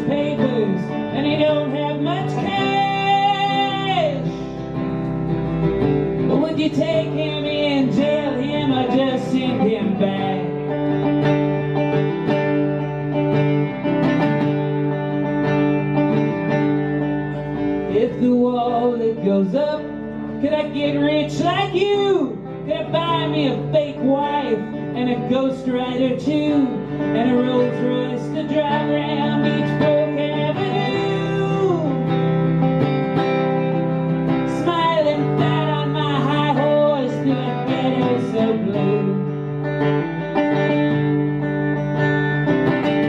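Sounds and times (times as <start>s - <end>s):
man singing: 0.0s - 4.8s, 6.2s - 11.2s, 17.9s - 39.8s
acoustic guitar strummed: 0.0s - 43.0s.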